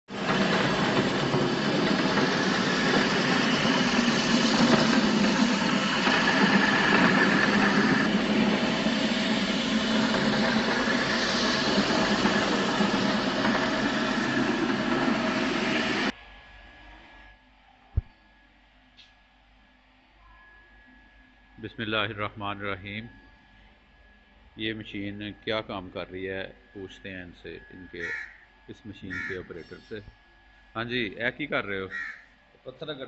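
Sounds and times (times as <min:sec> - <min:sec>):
floor grinding machine running: 0:00.0 - 0:16.2.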